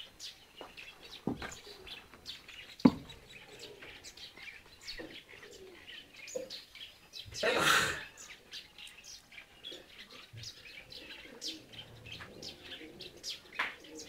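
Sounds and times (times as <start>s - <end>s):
small birds chirping: 0.0s - 14.0s
dove cooing: 3.0s - 6.5s, 9.6s - 14.0s.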